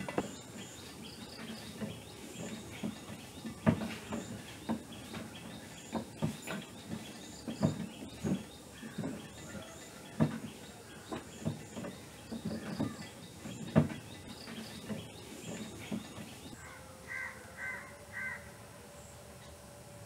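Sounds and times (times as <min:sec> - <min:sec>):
irregular knocks and taps: 0:00.0 - 0:16.6
crow cawing: 0:16.6 - 0:18.6.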